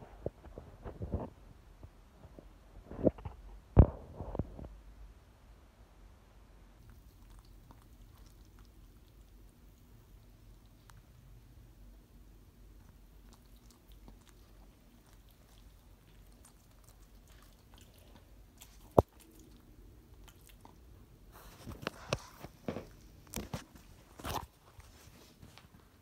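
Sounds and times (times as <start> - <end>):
dog chewing: 6.8 - 11.2, 12.7 - 25.3.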